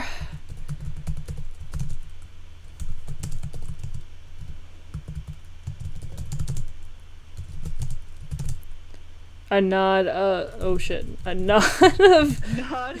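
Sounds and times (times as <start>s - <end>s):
computer keyboard typing: 0.4s - 2.2s, 2.8s - 8.7s.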